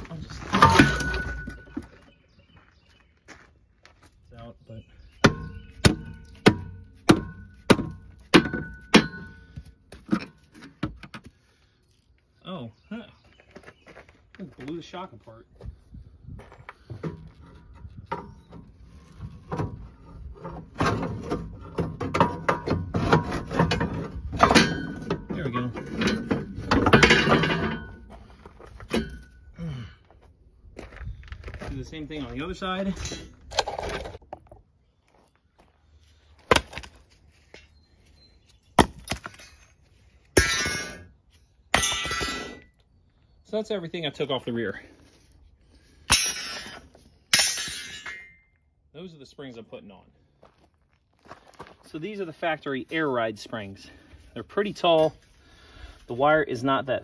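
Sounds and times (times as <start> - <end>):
metal clanks and scraping: 0.0 - 2.1, 5.2 - 11.3, 16.8 - 29.5, 39.3 - 42.8, 46.0 - 48.6
pry bar clanking on coil spring: 20.8 - 28.1.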